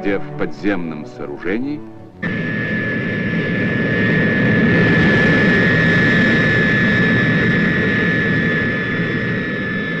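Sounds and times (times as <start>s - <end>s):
high engine whine: 0.0s - 10.0s
turboprop engine rumble: 0.0s - 10.0s.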